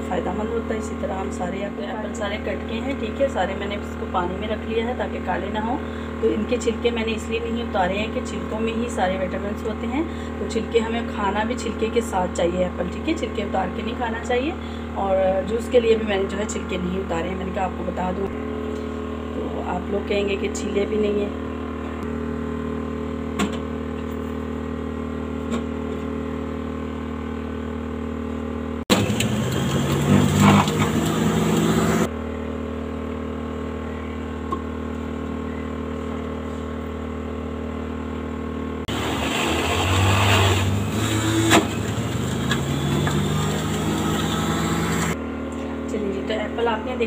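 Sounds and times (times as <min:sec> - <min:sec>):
electric juicer motor humming: 0:00.0 - 0:08.5, 0:20.9 - 0:45.9
juicer grinding apple pieces: 0:28.9 - 0:32.1, 0:38.9 - 0:45.2.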